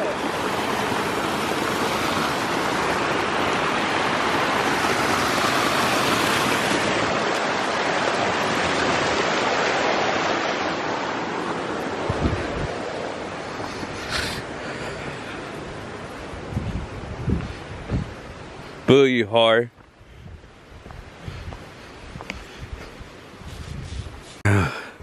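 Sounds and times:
creek water rushing over rocks: 0:00.0 - 0:18.8.

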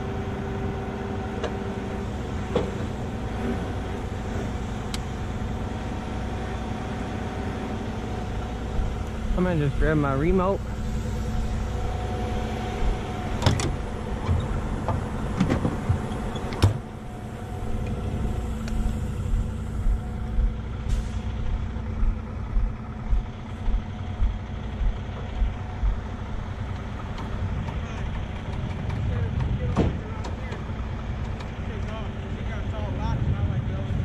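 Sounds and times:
diesel engine running: 0:00.0 - 0:34.0
low thumps: 0:18.7 - 0:26.0.

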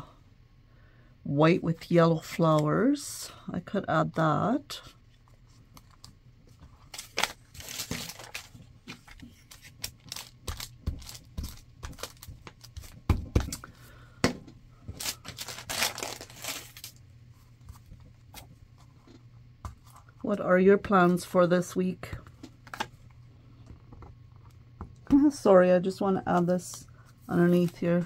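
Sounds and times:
paper rustling and crinkling: 0:05.4 - 0:13.6, 0:14.9 - 0:17.0, 0:27.3 - 0:28.0.

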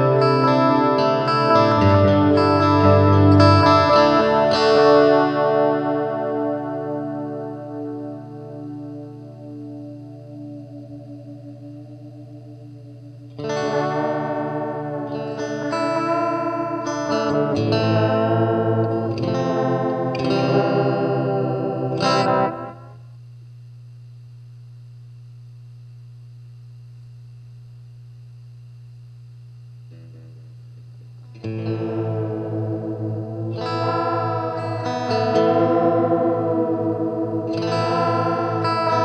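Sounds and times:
electric guitar with delay: 0:00.0 - 0:23.0, 0:31.2 - 0:39.0
steady low amp hum: 0:00.0 - 0:39.0.

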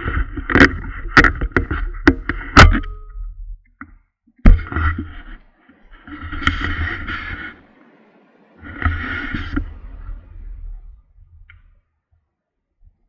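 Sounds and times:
camera rubbing against jacket: 0:04.5 - 0:07.8, 0:08.6 - 0:10.2.

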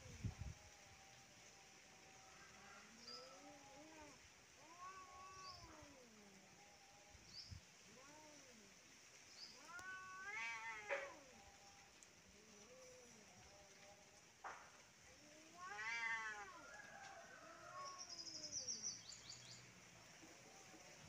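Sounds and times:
cats yowling: 0:02.6 - 0:08.8, 0:09.5 - 0:14.3, 0:15.1 - 0:18.8.

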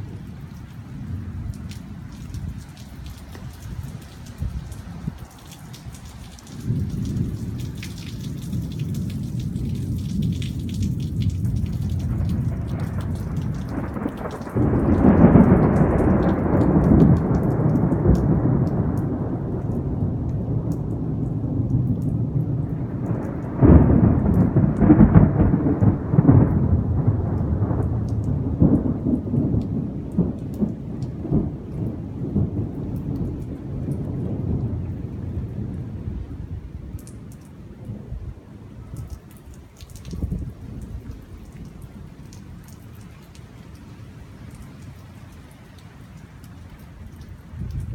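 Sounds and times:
thunder rumbling: 0:00.0 - 0:43.0, 0:46.8 - 0:47.9
rain pattering: 0:00.0 - 0:47.9
loud thunder claps: 0:06.6 - 0:37.2, 0:47.6 - 0:47.9.

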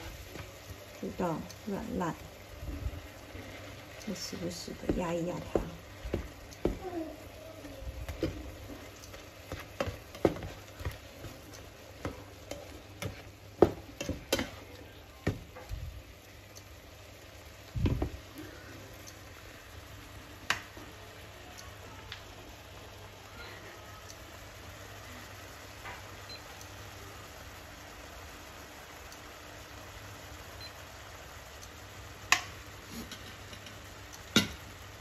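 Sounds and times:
simmering sizzle: 0:00.0 - 0:35.0
spatula knocking against pan: 0:04.8 - 0:06.8, 0:09.4 - 0:14.6.

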